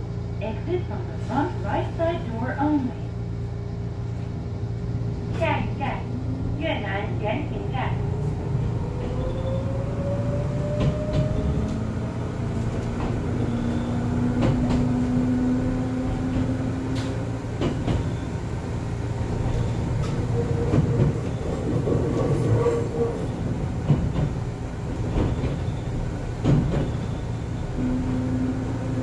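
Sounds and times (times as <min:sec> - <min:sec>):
electric train rumbling: 0:00.0 - 0:29.0
train motor whine: 0:24.9 - 0:29.0.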